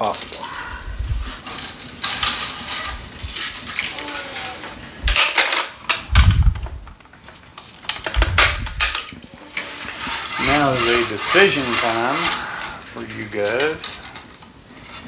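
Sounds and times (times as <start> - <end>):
hands rustling on racket strings: 6.0 - 15.0.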